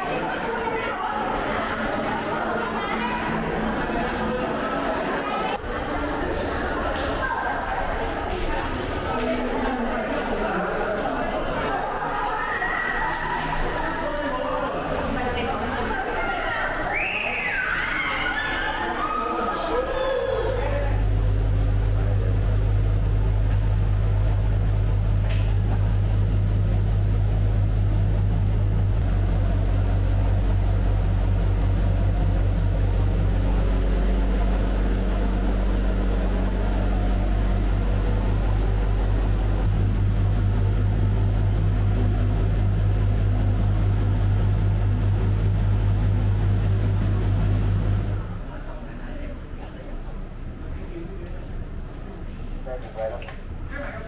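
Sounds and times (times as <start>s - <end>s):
low mechanical hum: 0.0s - 54.0s.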